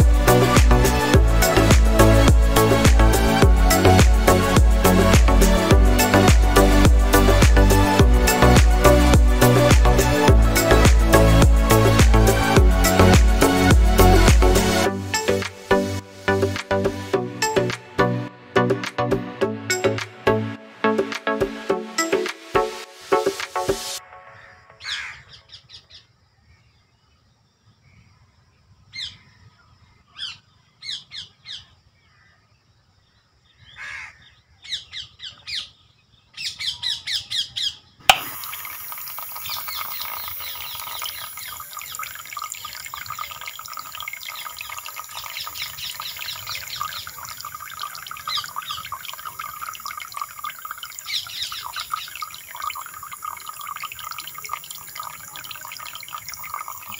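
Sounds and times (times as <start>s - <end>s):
small water pump running: 0.0s - 14.8s, 38.1s - 56.9s
birds chirping: 33.7s - 56.9s
water jet splashing on sand: 38.1s - 56.9s.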